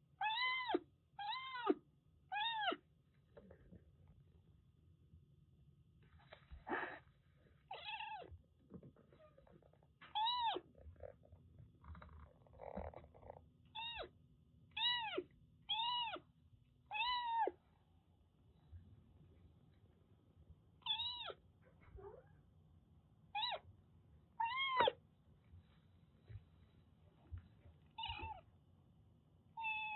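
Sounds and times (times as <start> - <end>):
kitten meowing: 0.2 - 2.8, 7.7 - 8.3, 10.1 - 10.7, 13.7 - 14.1, 14.7 - 16.2, 16.9 - 17.6, 20.8 - 21.4, 24.4 - 25.0, 28.0 - 28.4, 29.6 - 29.9.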